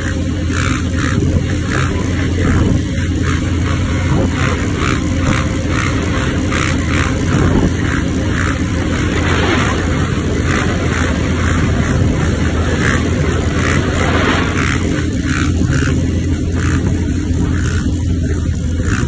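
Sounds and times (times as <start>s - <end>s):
quad bike engine running: 0.0s - 19.0s
road noise: 0.0s - 19.0s
wind noise: 1.0s - 19.0s.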